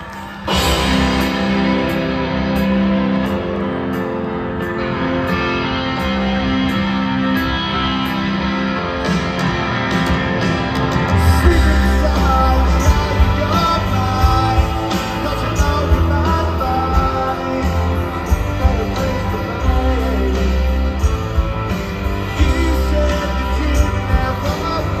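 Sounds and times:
guitar: 0:00.0 - 0:25.0
live rock band: 0:00.0 - 0:25.0
person singing: 0:11.1 - 0:21.4, 0:22.2 - 0:25.0.

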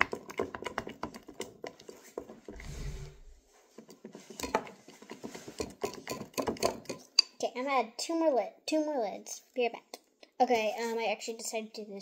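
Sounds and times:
low rumble: 0:02.5 - 0:03.4.

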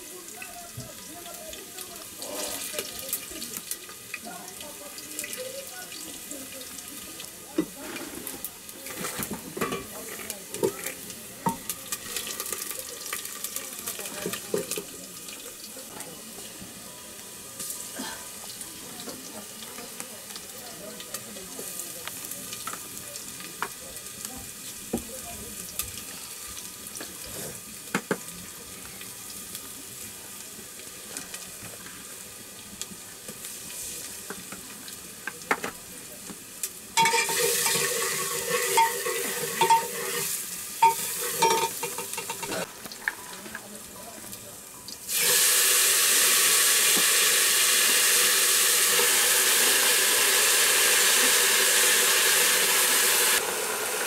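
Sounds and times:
pressure cooker venting steam: 0:00.0 - 0:54.0
small clicks from fire and pots: 0:02.6 - 0:05.5, 0:06.5 - 0:16.7, 0:18.4 - 0:45.2, 0:46.9 - 0:47.1
pressure cooker sputtering and whistling: 0:37.0 - 0:42.6, 0:45.1 - 0:54.0.

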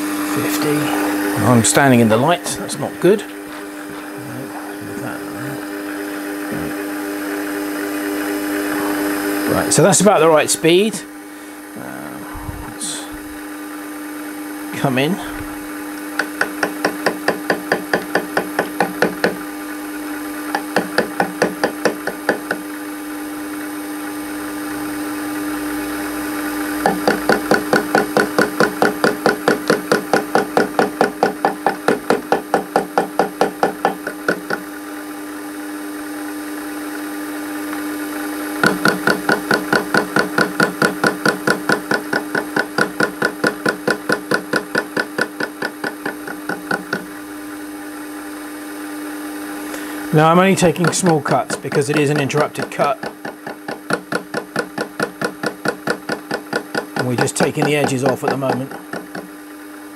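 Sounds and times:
lathe running hum: 0:00.0 - 0:59.9
tool bit knocking on metal: 0:16.2 - 0:19.5, 0:20.5 - 0:22.7, 0:26.8 - 0:34.8, 0:38.6 - 0:47.2, 0:50.6 - 0:59.4.

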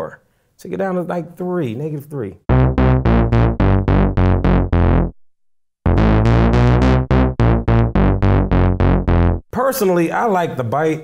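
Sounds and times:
synthesizer funk bass line: 0:02.5 - 0:09.5.

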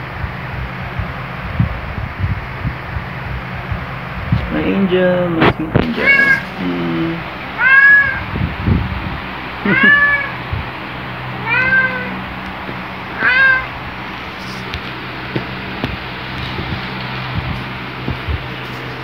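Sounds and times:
cat meowing: 0:05.9 - 0:06.6, 0:07.6 - 0:08.3, 0:09.6 - 0:10.4, 0:11.4 - 0:12.2, 0:13.0 - 0:13.9.

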